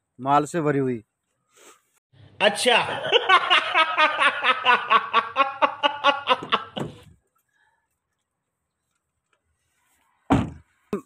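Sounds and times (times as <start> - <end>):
man laughing: 2.7 - 7.1.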